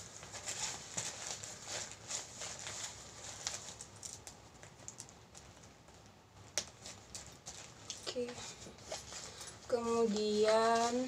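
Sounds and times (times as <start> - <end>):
rustling of fabric bag: 0.0 - 4.9.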